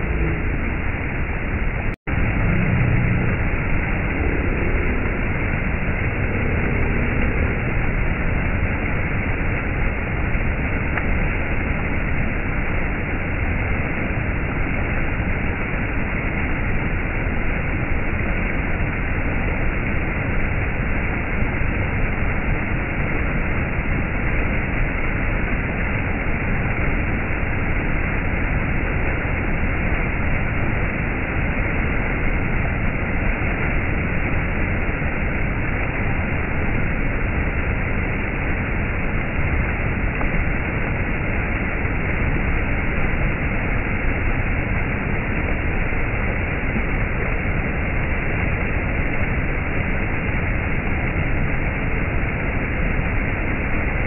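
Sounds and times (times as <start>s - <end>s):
stream water splashing over rocks: 2.1s - 54.0s.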